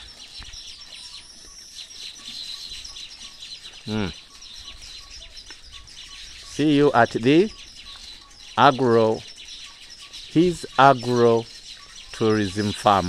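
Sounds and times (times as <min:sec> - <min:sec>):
birds chirping: 0:00.0 - 0:13.0
faint repeated peeping: 0:00.0 - 0:13.0
short low vocal sound: 0:03.9 - 0:04.2.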